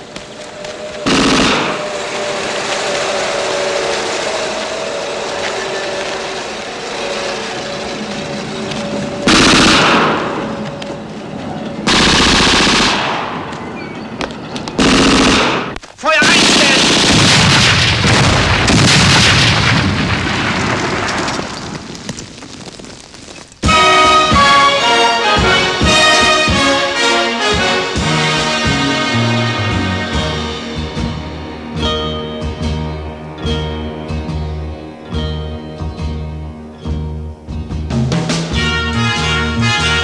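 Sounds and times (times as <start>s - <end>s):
steady drone: 0.0s - 15.8s, 23.6s - 37.5s
machine-gun fire: 1.0s - 2.0s, 9.3s - 10.5s, 11.9s - 13.5s, 14.8s - 21.3s
loud explosions: 1.0s - 5.2s, 9.1s - 10.6s, 11.8s - 22.9s.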